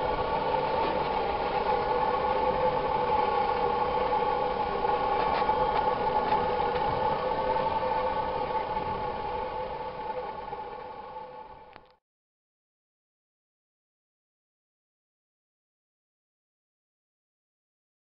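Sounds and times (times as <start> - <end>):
rushing noise: 0.0 - 11.8
mechanical hum: 0.0 - 12.0.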